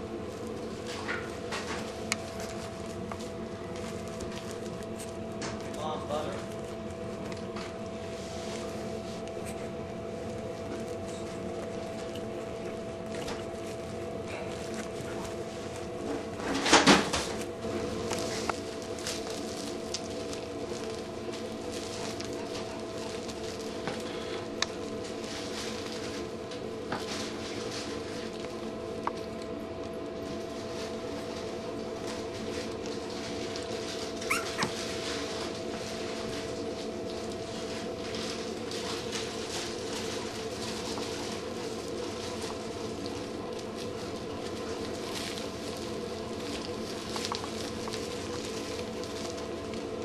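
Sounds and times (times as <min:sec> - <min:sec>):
puppies rustling on blankets: 0:00.0 - 0:50.0
steady mechanical hum: 0:00.0 - 0:50.0
faint squeak: 0:34.3 - 0:34.6.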